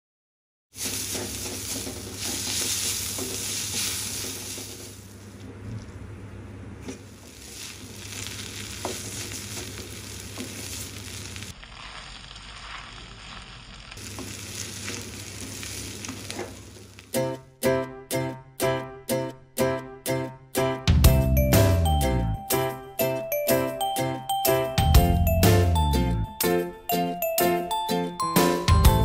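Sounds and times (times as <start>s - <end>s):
noodles sizzling in a wok: 0.7s - 5.4s, 6.8s - 17.2s
spatula scraping and tossing: 0.8s - 5.4s, 6.8s - 17.0s.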